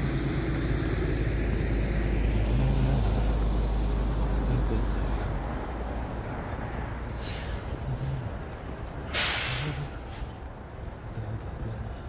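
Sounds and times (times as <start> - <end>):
truck rumbling past: 0.0 - 10.7
air brake hiss: 7.1 - 7.7, 9.1 - 10.3.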